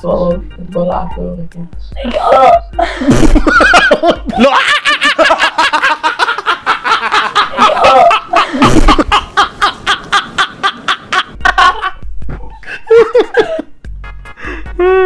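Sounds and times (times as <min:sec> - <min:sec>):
people laughing hard: 0:02.2 - 0:13.7.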